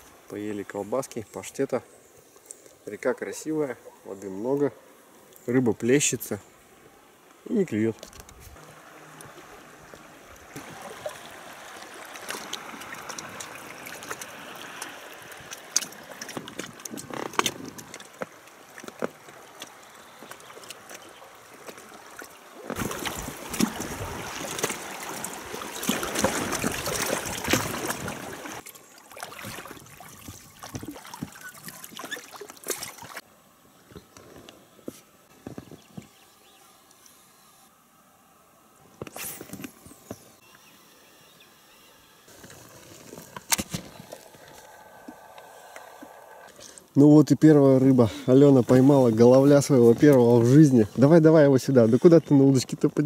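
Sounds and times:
water splashing and lapping: 7.6s - 33.3s, 42.3s - 53.0s.

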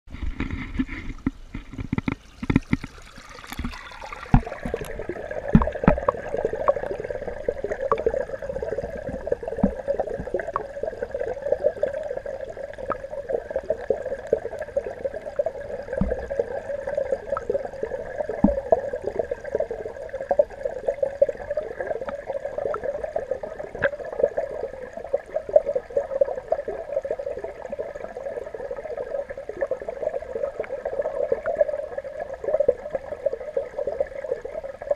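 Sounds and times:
water sloshing: 0.1s - 10.8s
muffled underwater hum: 0.1s - 34.9s
underwater clicks and crackles: 0.1s - 34.9s.

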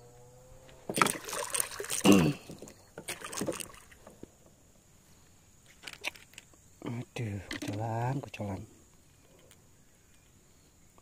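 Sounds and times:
water splashing at a boat: 0.9s - 4.2s.

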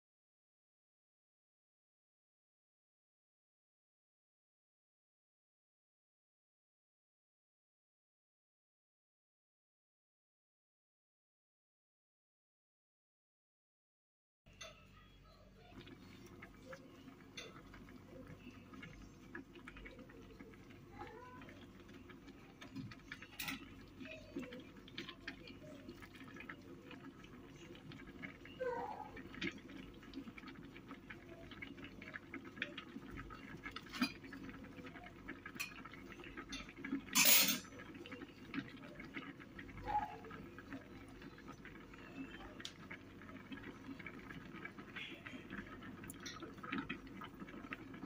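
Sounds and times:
crackles and clicks at a pot: 14.5s - 48.0s.

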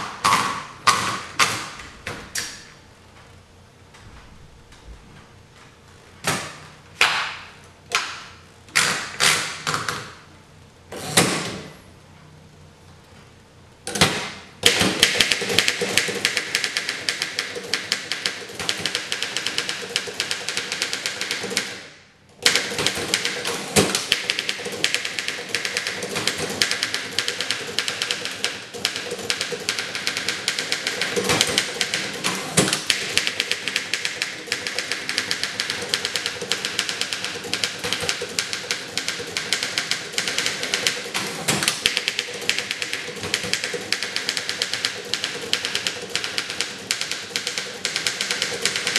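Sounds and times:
rapid manual typewriter typing: 13.9s - 48.9s.

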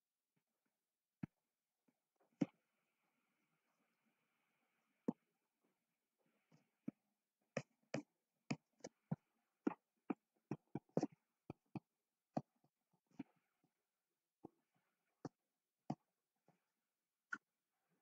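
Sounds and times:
stylus tapping on tablet screen: 7.6s - 13.3s.

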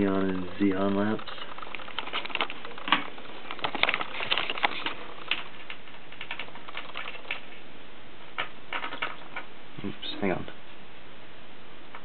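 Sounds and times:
sharp electrical ticking and snapping: 0.0s - 7.7s.

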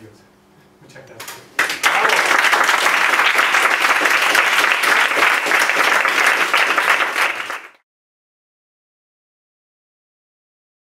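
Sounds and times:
small audience applauding: 1.6s - 7.8s.

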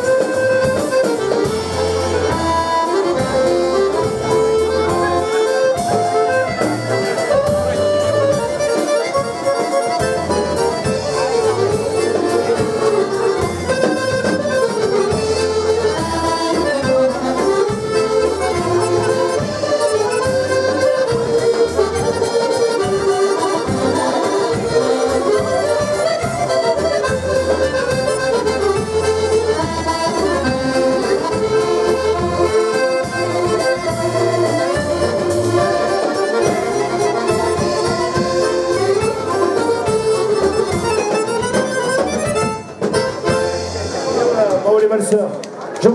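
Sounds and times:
button accordions playing: 0.0s - 45.0s.

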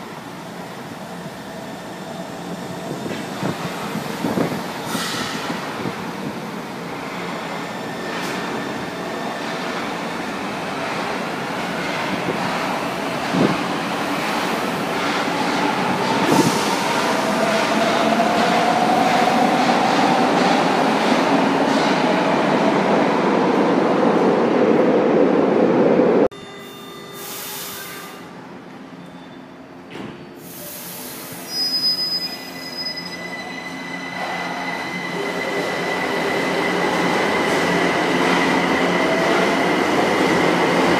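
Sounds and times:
subway train rumbling: 0.0s - 40.9s
train wheels squealing: 28.9s - 29.6s, 30.3s - 36.6s.

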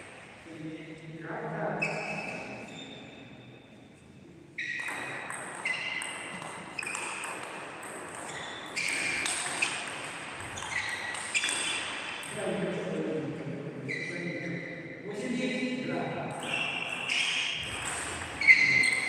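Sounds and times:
table tennis ball hits: 4.7s - 12.4s, 16.4s - 19.0s.

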